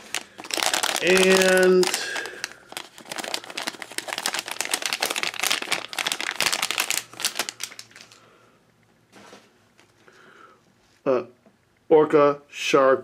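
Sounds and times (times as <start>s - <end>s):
plastic packet crinkling: 0.0s - 8.3s.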